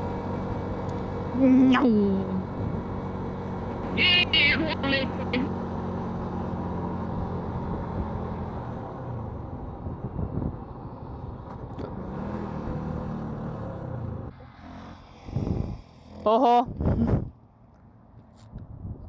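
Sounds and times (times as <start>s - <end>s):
motorcycle engine running: 0.0s - 8.4s
wind rushing over microphone: 9.3s - 11.4s, 15.2s - 15.9s, 16.6s - 17.4s, 18.5s - 19.0s.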